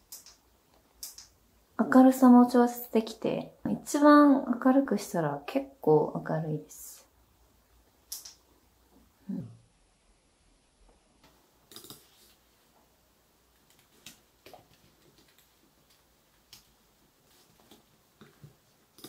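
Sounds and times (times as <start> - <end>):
faint clicks and taps: 13.5 - 19.0.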